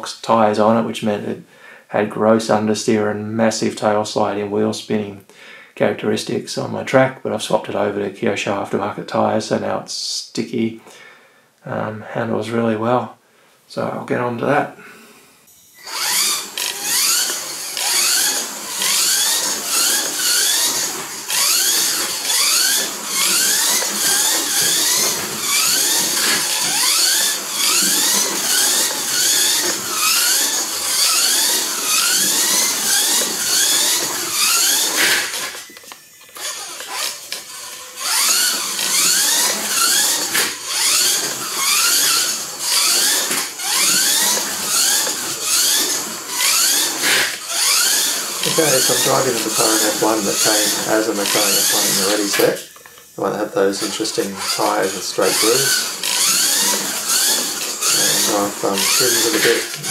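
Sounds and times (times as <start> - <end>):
toy car electric motor whining: 15.5 - 59.9.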